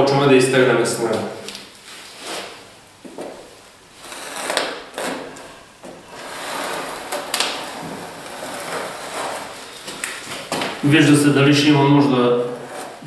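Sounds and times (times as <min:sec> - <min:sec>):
plastering tool scraping plaster: 0:04.0 - 0:10.5, 0:12.4 - 0:13.0.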